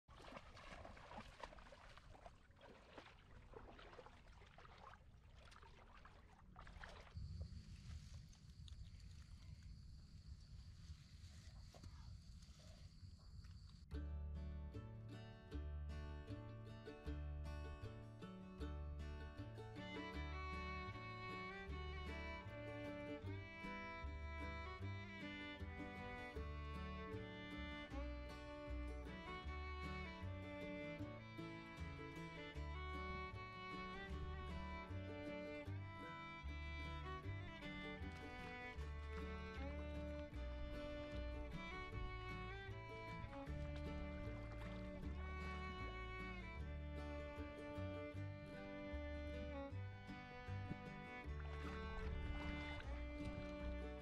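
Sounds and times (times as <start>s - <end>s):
feet splashing through shallow water: 0.0s - 12.9s, 18.7s - 54.0s
instrumental background music: 14.0s - 54.0s.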